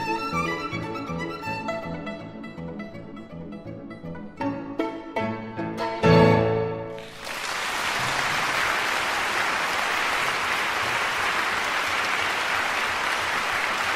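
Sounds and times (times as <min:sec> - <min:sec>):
violin and piano chord: 0:04.0 - 0:07.0
concert audience applauding: 0:07.0 - 0:13.9.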